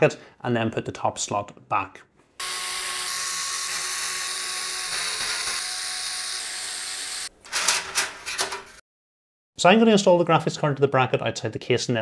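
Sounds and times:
electric screwdriver motor whine: 0:02.4 - 0:07.3.

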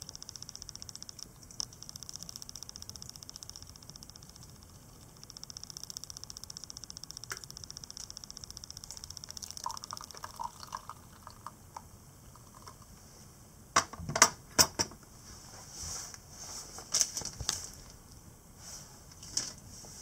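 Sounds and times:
fast even ticking: 0:00.0 - 0:11.0
water pouring onto coffee grounds: 0:08.9 - 0:11.6.

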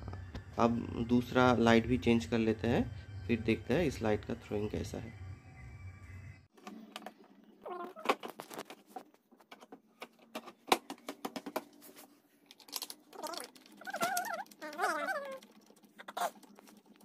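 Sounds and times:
warbling pitched calls: 0:13.1 - 0:16.5.

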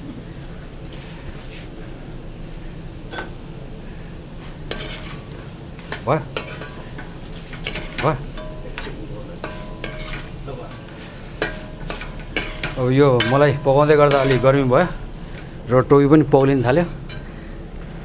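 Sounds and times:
potatoes sizzling in oil: 0:02.4 - 0:18.0
metal ladle scraping a wok: 0:04.4 - 0:15.7.

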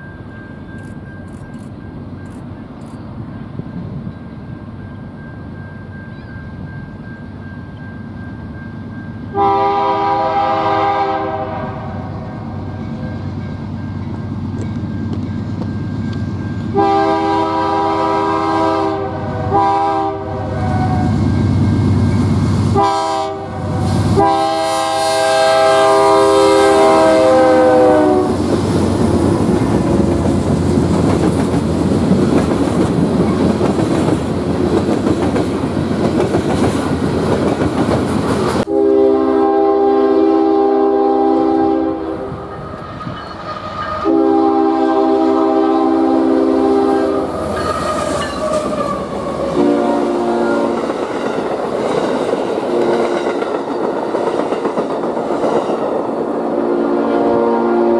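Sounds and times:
freight train rolling by: 0:00.0 - 0:57.9
train horn blasts: 0:09.3 - 0:12.8, 0:16.6 - 0:22.0, 0:22.6 - 0:28.5, 0:38.6 - 0:50.9, 0:52.7 - 0:53.3, 0:56.4 - 0:57.9.

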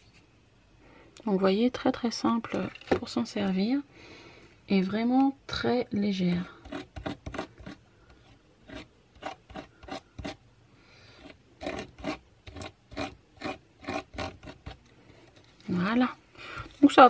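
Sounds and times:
spatula scraping paste: 0:06.4 - 0:10.4, 0:11.2 - 0:15.6.

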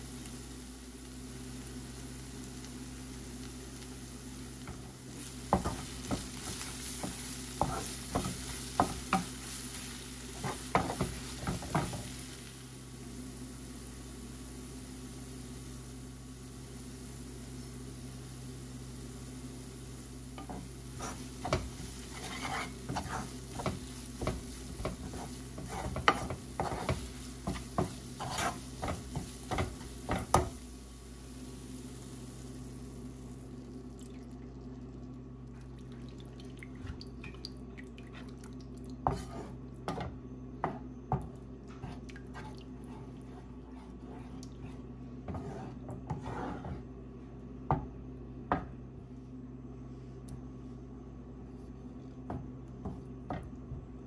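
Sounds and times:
steady low hum: 0:00.0 - 0:54.0
utensil scraping and tapping pan: 0:20.4 - 0:30.5.

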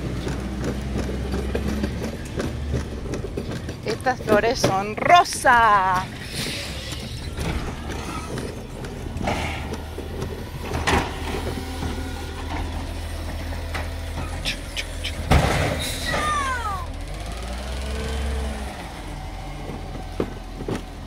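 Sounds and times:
mechanical clanks: 0:00.0 - 0:16.5
garbage truck engine hum: 0:00.0 - 0:21.0.

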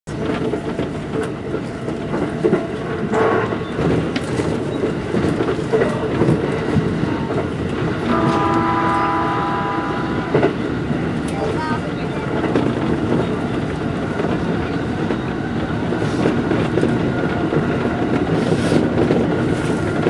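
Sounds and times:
wheels clattering over rail joints: 0:00.1 - 0:20.0
electric train running: 0:00.2 - 0:20.0.

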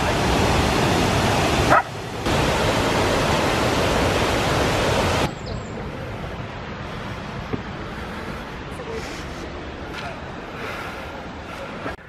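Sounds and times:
waterfall roaring: 0:00.0 - 0:12.0.

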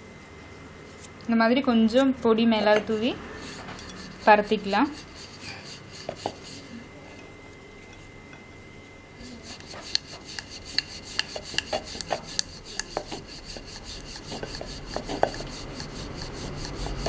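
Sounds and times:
rolling pin rolling dough: 0:02.8 - 0:07.3, 0:09.2 - 0:17.0.

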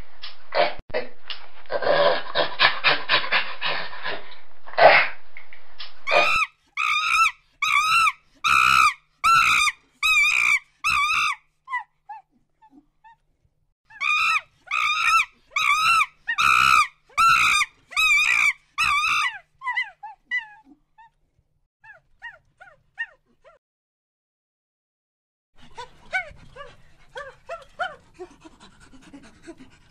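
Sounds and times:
monkey calling: 0:06.1 - 0:11.9, 0:13.9 - 0:20.6.

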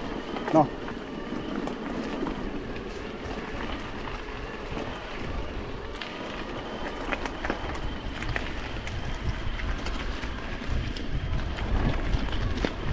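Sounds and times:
bike tyres rumbling on rough ground: 0:00.0 - 0:12.9.

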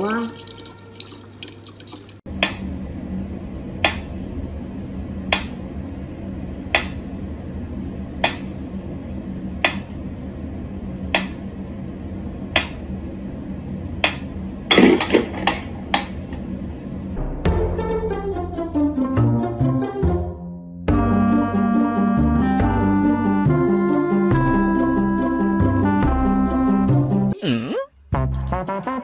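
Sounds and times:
steady low hum: 0:02.3 - 0:17.5.

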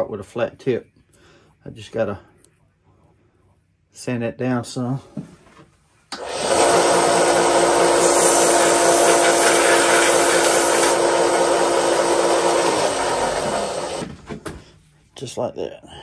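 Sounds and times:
power sanding tool grinding metal: 0:06.5 - 0:14.0.

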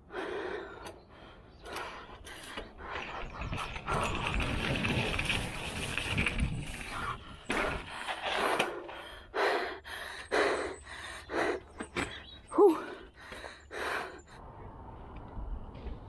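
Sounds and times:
heavy breathing: 0:06.8 - 0:14.6.

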